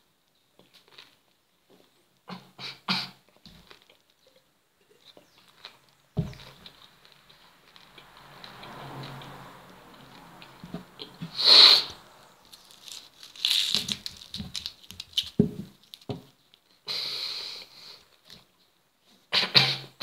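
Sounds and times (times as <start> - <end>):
person crunching raw onion: 12.3 - 16.7.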